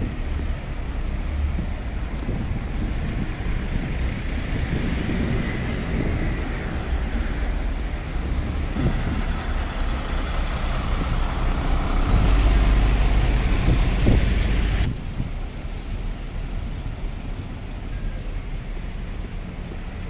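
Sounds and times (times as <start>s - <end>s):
high hiss: 0.0s - 2.9s, 3.6s - 20.0s
bus diesel engines rumbling: 0.0s - 20.0s.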